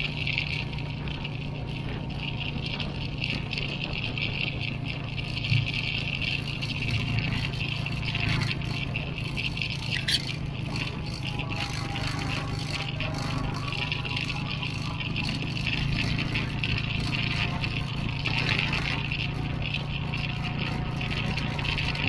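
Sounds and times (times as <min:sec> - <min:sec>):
vehicle engine drone with rattling: 0:00.0 - 0:22.0.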